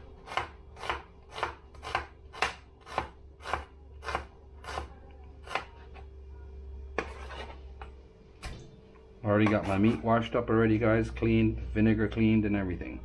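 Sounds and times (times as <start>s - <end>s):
knife chopping on cutting board: 0.2s - 5.7s
knife scraping cutting board: 0.3s - 5.8s, 7.0s - 7.8s, 9.4s - 10.2s.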